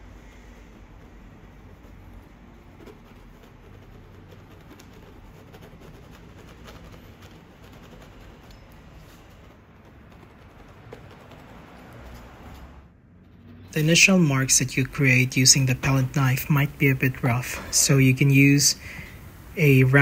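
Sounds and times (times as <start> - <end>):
low steady hum: 0.0 - 20.0
palette knife scraping: 1.3 - 15.2.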